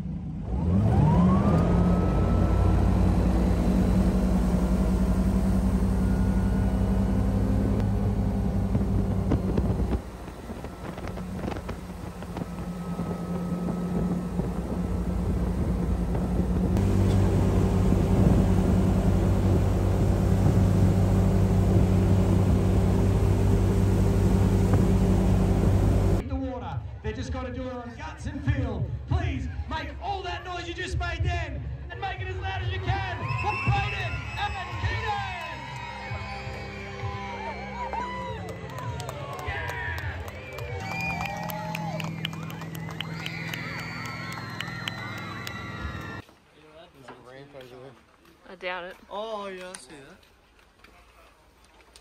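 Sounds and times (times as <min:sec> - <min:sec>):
boat engine revving: 0:00.0 - 0:26.2, 0:33.3 - 0:46.2
wind: 0:00.0 - 0:52.0.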